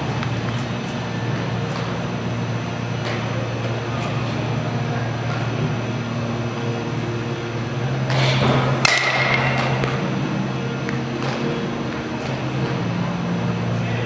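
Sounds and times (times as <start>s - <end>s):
low mechanical hum: 0.0s - 14.0s
baseball bat hitting ball: 8.2s - 10.0s.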